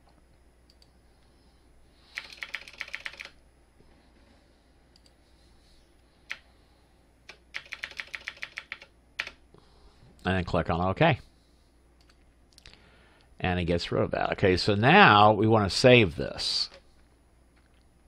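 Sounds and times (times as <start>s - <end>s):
computer keyboard keystrokes: 2.1s - 3.4s, 7.3s - 9.4s.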